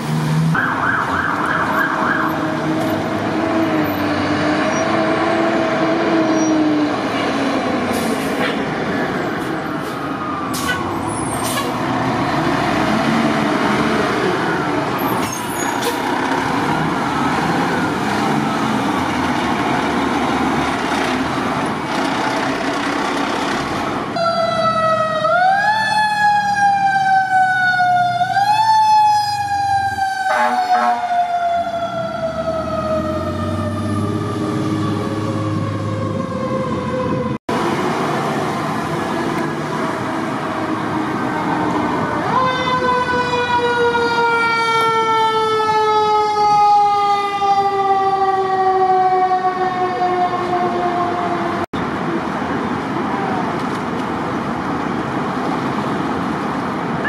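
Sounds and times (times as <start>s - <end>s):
heavy truck engine: 0.0s - 0.6s, 1.7s - 25.4s, 32.0s - 45.2s
wavering siren: 0.5s - 3.1s, 9.2s - 11.4s, 16.6s - 19.2s, 24.2s - 37.4s, 38.7s - 51.6s
wailing siren: 0.5s - 7.3s, 9.0s - 11.7s, 12.9s - 15.2s, 15.9s - 19.9s, 24.1s - 51.7s.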